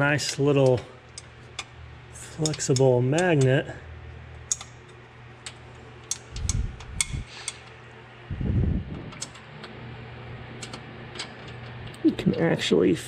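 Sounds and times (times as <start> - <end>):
steady low hum: 0.0 - 13.0
short low rumbles: 8.3 - 9.2.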